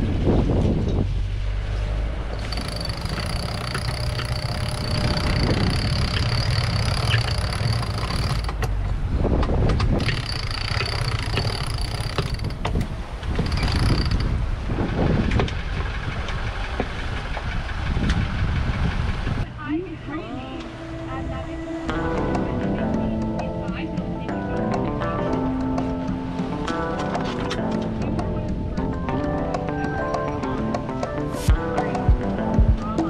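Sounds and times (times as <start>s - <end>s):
wind and water rushing: 0.0s - 2.4s, 12.5s - 19.4s
rigging creaking and knocking: 2.3s - 18.3s.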